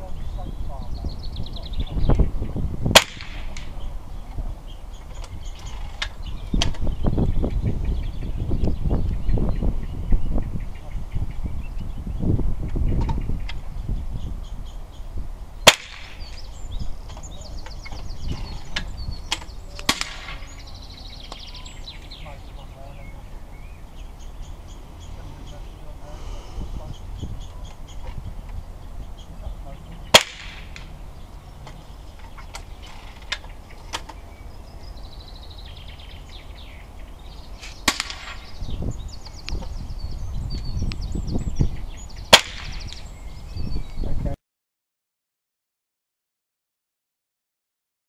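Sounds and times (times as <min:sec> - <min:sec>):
birds trilling: 0:00.0 - 0:44.4
sharp cracks: 0:02.9 - 0:03.8, 0:15.6 - 0:16.5, 0:18.8 - 0:22.1, 0:30.1 - 0:31.0, 0:37.6 - 0:38.6, 0:42.3 - 0:43.1.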